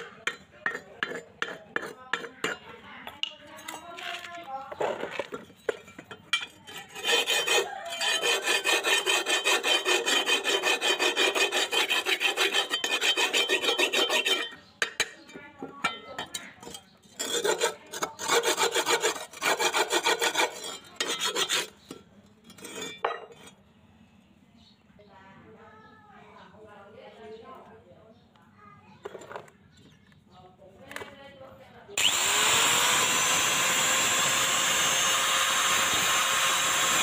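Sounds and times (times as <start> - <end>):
towel rasping on metal blade: 6.7 - 14.6, 17.2 - 21.9.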